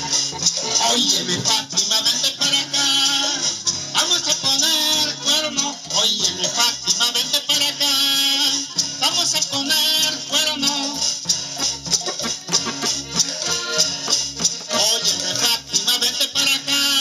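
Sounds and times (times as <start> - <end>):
button accordion playing: 0.0 - 17.0
man singing: 0.6 - 11.3, 14.7 - 17.0.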